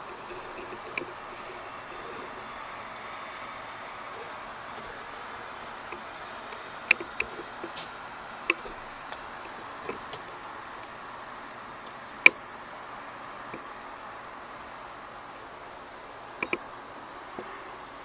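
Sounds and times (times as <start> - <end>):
sharp clicks: 0.0 - 11.0, 16.4 - 16.7
steady hiss: 0.0 - 18.0.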